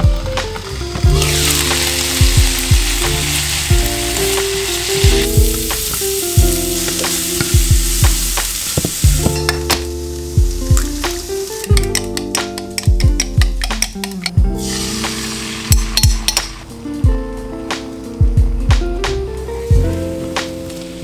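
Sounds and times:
vegetables sizzling in a frying pan: 0.0s - 12.8s, 14.6s - 16.9s, 19.6s - 21.0s
background music with steady beat: 0.0s - 21.0s
spatula stirring onions: 1.0s - 16.6s.

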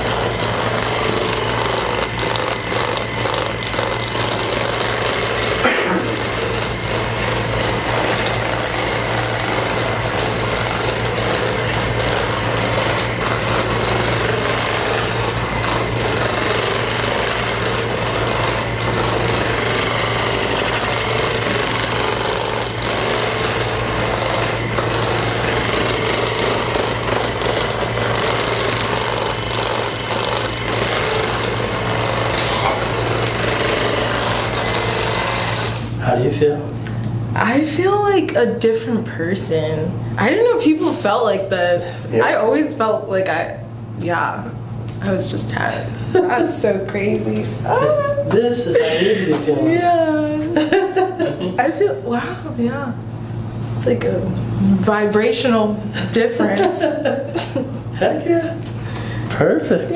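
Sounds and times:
motorized tool buzzing: 0.0s - 36.4s.

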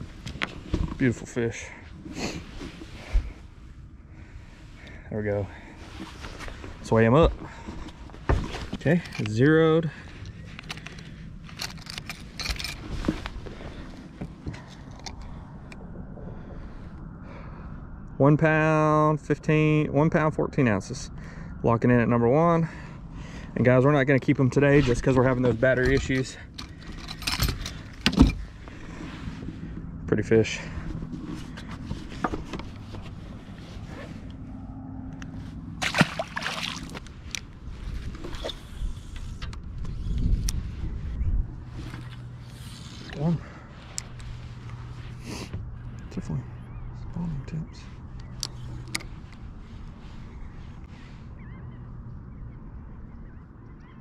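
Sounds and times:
low steady hum: 0.0s - 54.0s
metal clamp clicking and rattling: 10.6s - 12.9s
fish splashing into water: 35.8s - 37.0s.

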